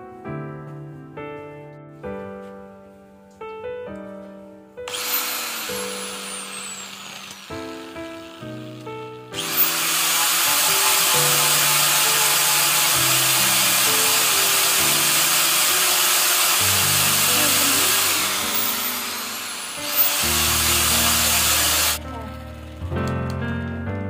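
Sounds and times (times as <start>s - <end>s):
background music: 0.0s - 24.0s
angle grinder sanding wood: 4.9s - 22.0s.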